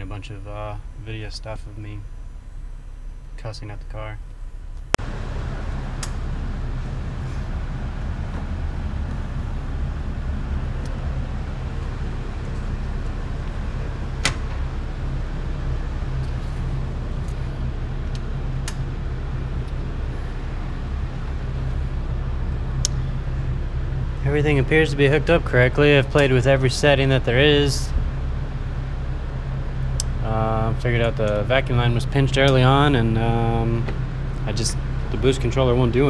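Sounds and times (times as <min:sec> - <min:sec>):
car engine idling: 0:00.0 - 0:36.0
sharp clicks: 0:22.8 - 0:23.0.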